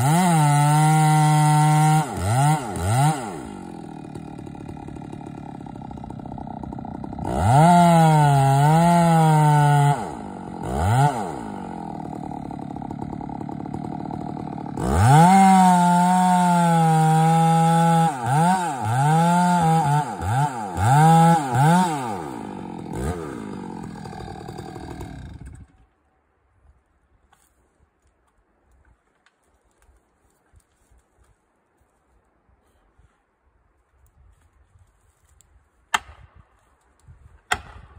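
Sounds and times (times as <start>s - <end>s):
chainsaw cutting into tree: 0.0s - 25.9s
chainsaw idling and revving: 0.0s - 25.9s.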